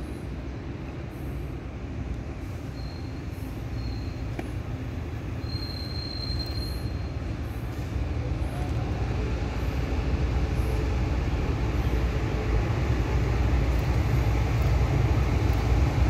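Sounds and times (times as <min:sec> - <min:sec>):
train rumbling: 0:00.0 - 0:16.0
high-pitched wheel squeal: 0:02.7 - 0:03.2, 0:03.8 - 0:04.2, 0:05.4 - 0:07.1.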